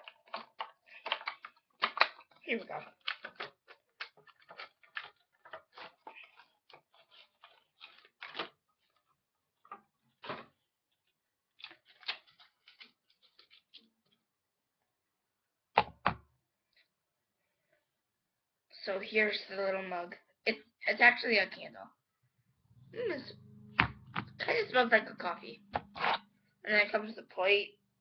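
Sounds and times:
packaging crinkling: 0.0s - 9.0s, 11.5s - 13.8s.

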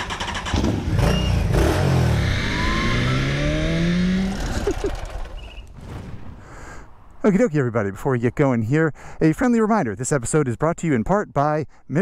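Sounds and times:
motorcycle engine revving: 0.0s - 5.6s.

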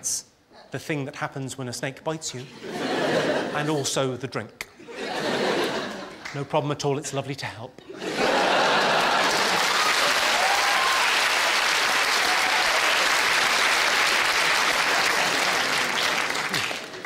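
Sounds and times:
audience laughing: 2.4s - 4.0s, 4.8s - 6.3s, 7.8s - 9.9s, 14.6s - 17.0s
audience applauding: 8.3s - 17.0s.

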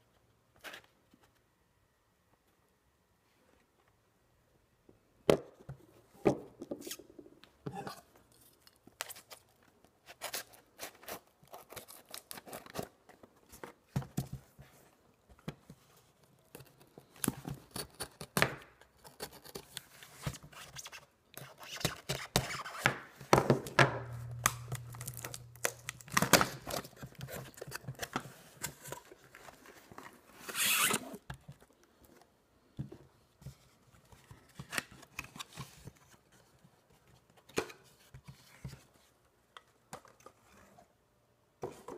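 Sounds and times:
packing tape tearing: 24.3s - 27.8s, 30.4s - 31.2s.

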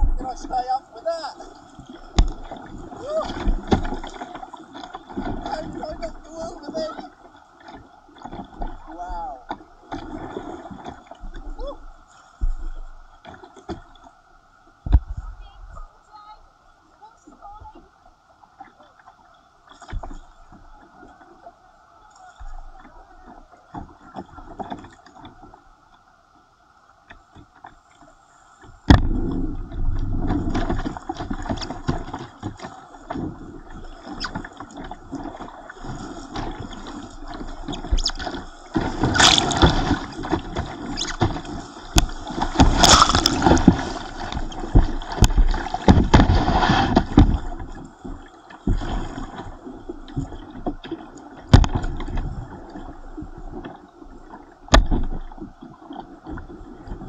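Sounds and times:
water slapping camera: 0.0s - 14.0s, 28.8s - 57.0s.

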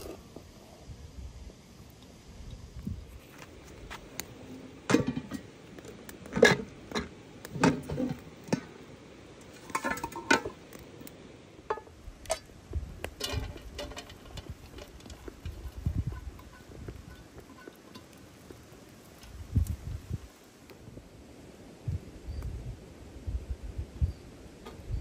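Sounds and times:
metal cookware clanking: 4.9s - 5.5s, 9.6s - 10.6s, 13.2s - 18.2s.

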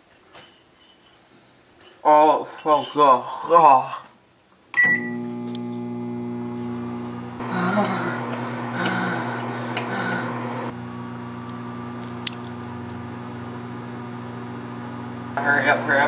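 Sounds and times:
microwave oven humming: 4.8s - 16.0s.

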